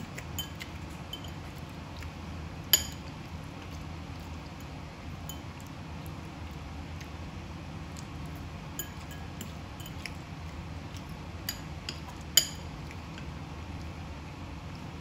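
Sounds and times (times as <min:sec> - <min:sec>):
steady low hum: 0:00.0 - 0:15.0
spoon clinking against bowl: 0:00.4 - 0:01.4, 0:02.7 - 0:03.1, 0:05.3 - 0:05.5, 0:08.8 - 0:10.0, 0:11.5 - 0:12.7.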